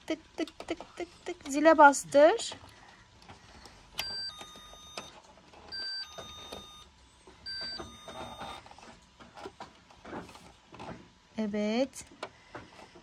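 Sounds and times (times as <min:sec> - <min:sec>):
two-note electronic doorbell chime: 0:04.0 - 0:05.1, 0:05.8 - 0:06.9, 0:07.5 - 0:08.6.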